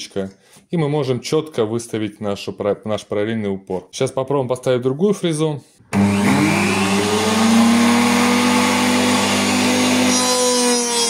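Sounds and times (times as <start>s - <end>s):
router motor whining: 5.9s - 11.0s.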